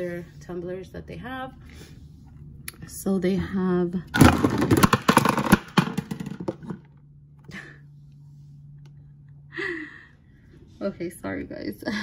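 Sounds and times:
plastic cups toppling and clattering: 4.2s - 6.9s.

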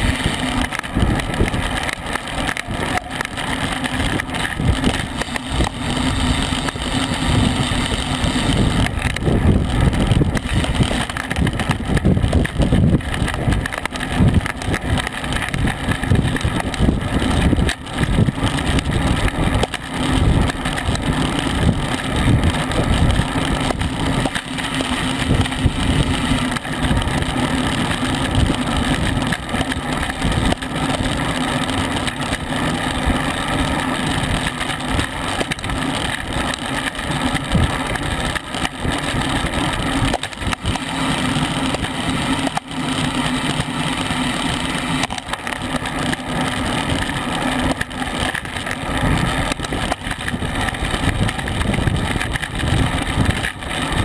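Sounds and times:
tyre noise on concrete road: 0.0s - 54.0s
wind rushing over microphone: 2.5s - 24.4s, 49.0s - 54.0s.

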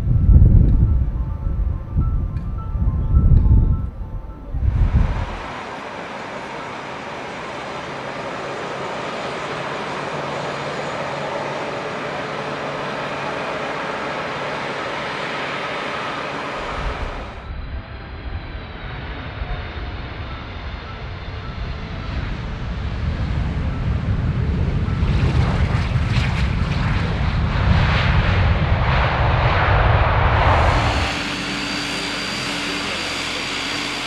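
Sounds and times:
steady sound: 0.0s - 17.5s, 27.9s - 34.0s
jet engines rumbling: 0.0s - 34.0s.

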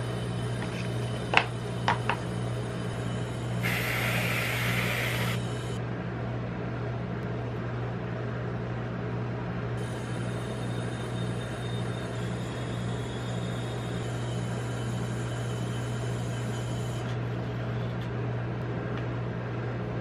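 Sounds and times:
compressor humming: 0.0s - 5.8s, 9.7s - 20.0s
aerosol can hissing: 3.6s - 5.4s.

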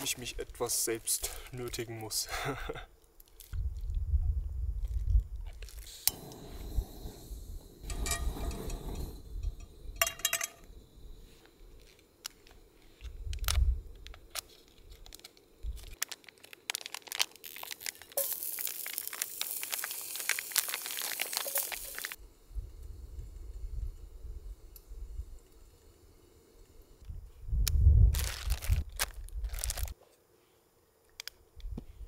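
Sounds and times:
steady hiss: 0.0s - 32.0s
cookware clinking and knocking: 10.0s - 10.6s
plastic packaging crinkling and tearing: 11.8s - 22.2s, 28.1s - 30.0s.

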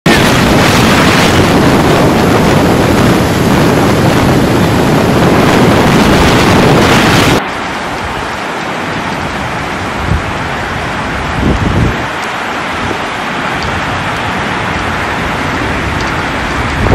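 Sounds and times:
heavy rain: 0.0s - 16.9s
wind buffeting microphone: 0.1s - 16.9s.

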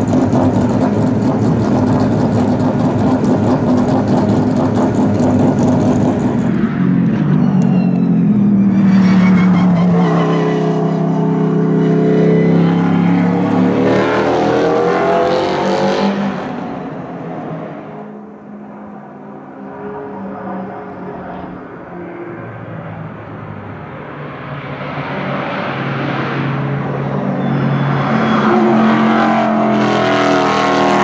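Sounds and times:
race car engine accelerating: 0.0s - 18.0s, 24.6s - 31.0s.

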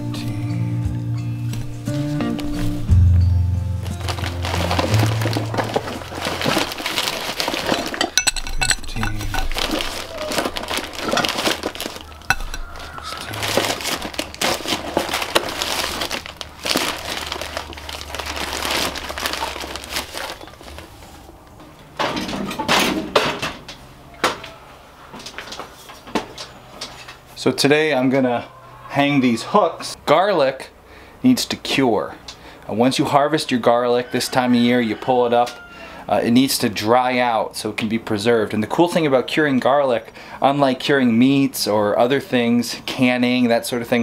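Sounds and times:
rustling hay: 3.8s - 21.4s
metal hooks clinking: 7.5s - 12.9s.

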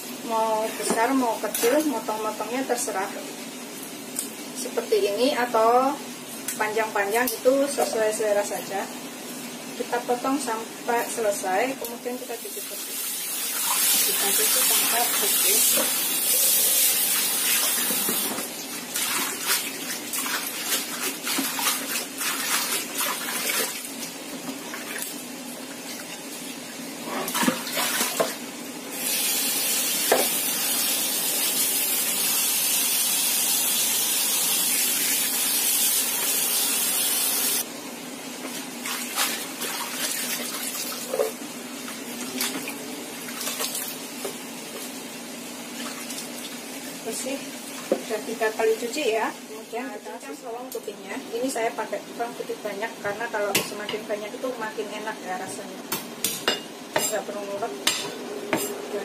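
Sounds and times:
tap water running and splashing: 11.2s - 37.6s, 38.4s - 49.1s
leaves sloshing in water: 18.7s - 25.2s, 38.8s - 41.1s.

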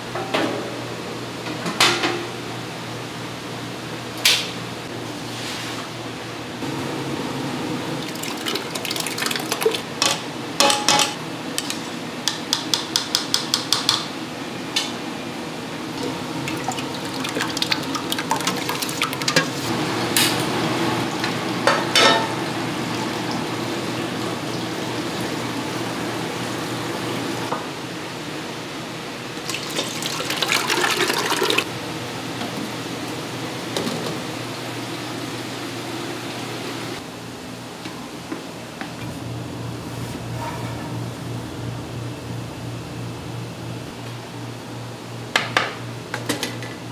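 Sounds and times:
kitchen hum: 0.0s - 46.9s
pots and utensils clanking: 1.5s - 2.3s, 9.3s - 11.9s, 21.2s - 22.4s, 40.3s - 41.0s.

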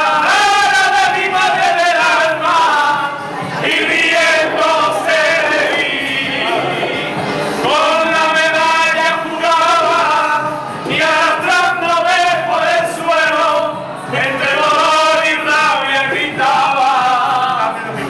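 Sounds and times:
men singing together: 0.0s - 18.0s.

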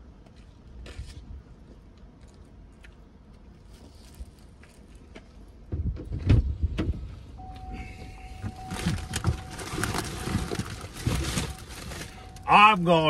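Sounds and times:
fabric bags rustling: 8.6s - 12.4s.

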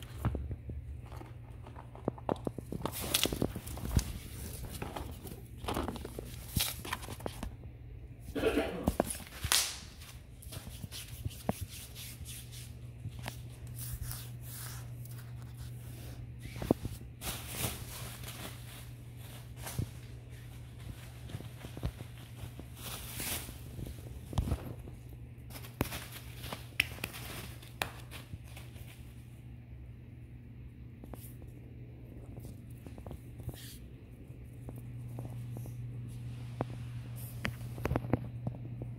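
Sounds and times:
bubble wrap and packing peanuts rustling: 0.0s - 7.5s, 8.9s - 29.3s.

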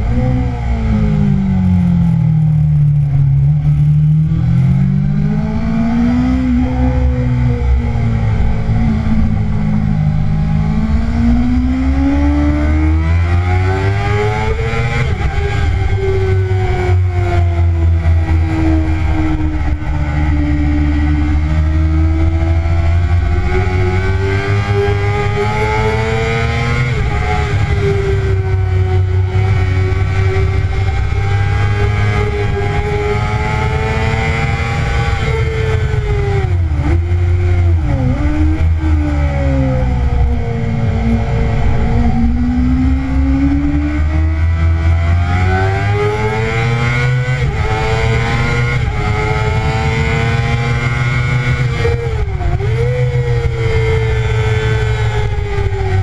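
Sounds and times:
motorcycle engine at high revs: 0.0s - 56.0s
wind rumble on microphone: 0.0s - 56.0s.

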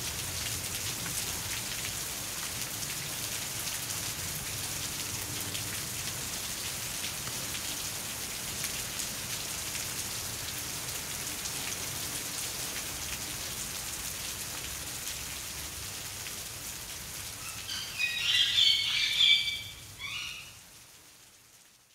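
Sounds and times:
rain pattering: 0.0s - 21.9s
high chirping: 17.4s - 20.5s.

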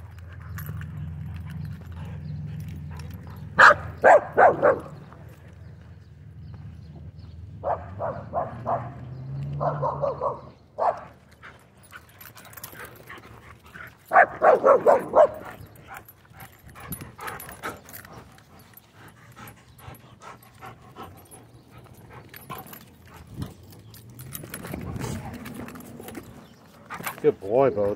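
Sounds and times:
dog barking: 3.6s - 5.0s, 7.6s - 9.0s, 9.6s - 11.2s, 14.1s - 15.6s.

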